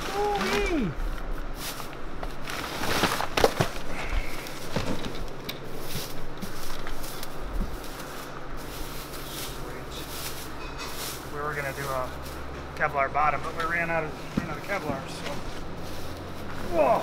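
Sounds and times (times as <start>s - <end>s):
packing paper crackling: 0.0s - 12.5s
plastic bag rustling: 0.0s - 17.0s.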